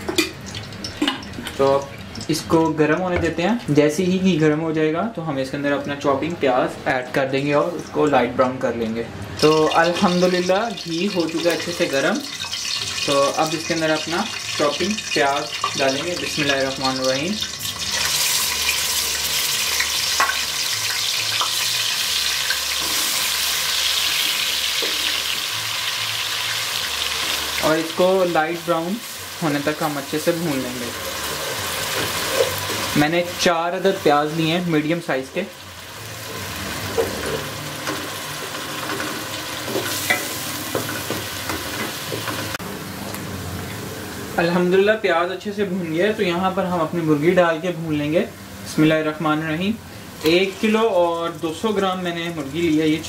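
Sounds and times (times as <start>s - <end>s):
onions sizzling in pan: 9.3s - 44.8s, 45.5s - 53.0s.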